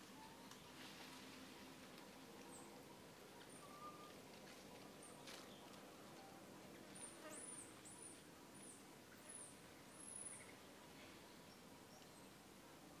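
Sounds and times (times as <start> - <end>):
faint background hiss: 0.0 - 13.0.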